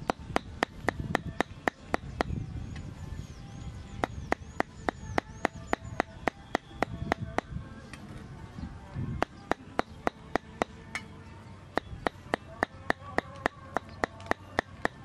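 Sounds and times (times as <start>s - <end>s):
cleaver chopping meat on wood: 11.8s - 15.0s.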